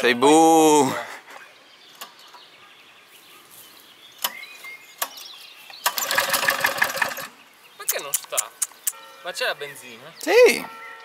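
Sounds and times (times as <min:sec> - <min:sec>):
bird chirp: 0:01.1 - 0:11.0
lawnmower recoil starter whirr: 0:05.8 - 0:07.3.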